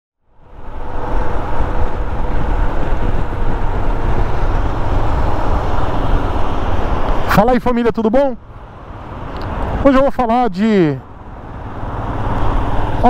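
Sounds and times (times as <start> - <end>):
wind and road rumble: 0.2 - 13.0
motorcycle engine cruising: 0.4 - 7.3.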